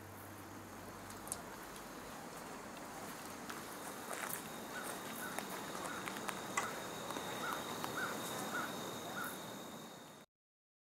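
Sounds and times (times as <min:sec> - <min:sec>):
high insect trill: 0:00.0 - 0:10.3
bird chirping: 0:02.0 - 0:10.2.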